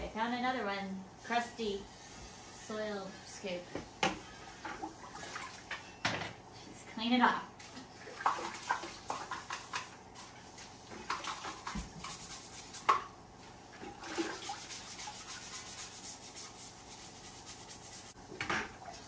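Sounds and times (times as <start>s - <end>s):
scrubbing strokes: 7.6s - 18.2s.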